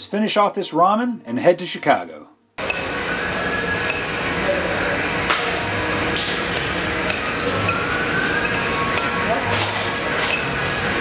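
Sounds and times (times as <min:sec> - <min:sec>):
restaurant din: 0:02.6 - 0:11.0.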